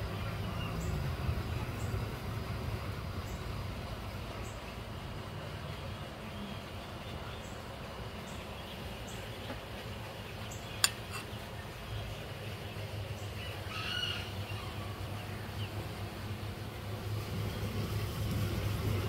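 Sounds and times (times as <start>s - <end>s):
low outdoor hum: 0.0s - 19.0s
bird chirp: 5.9s - 15.8s.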